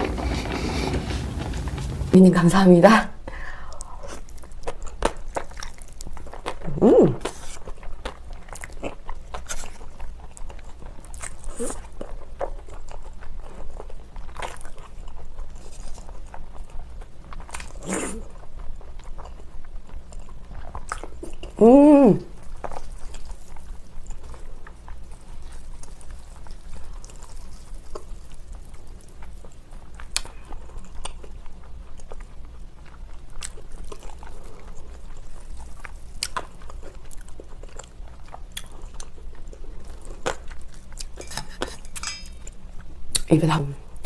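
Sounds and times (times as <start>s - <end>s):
person chewing and slurping noodles: 0.0s - 2.1s, 22.3s - 43.2s.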